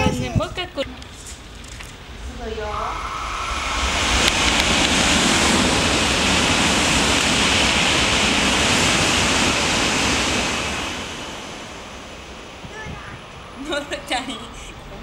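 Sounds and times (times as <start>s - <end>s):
high-speed train passing: 0.0s - 15.0s.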